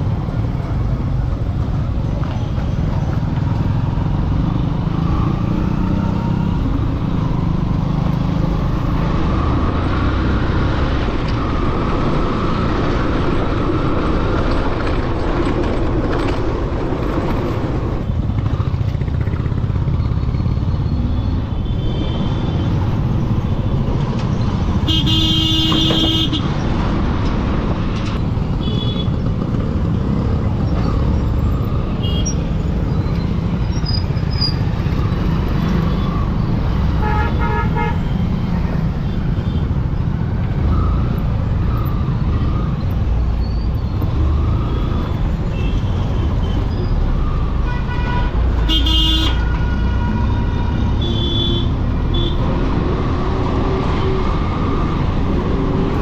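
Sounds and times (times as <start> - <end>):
road traffic rumble: 0.0 - 56.0
vehicle horn honking: 24.9 - 26.4, 47.7 - 52.4.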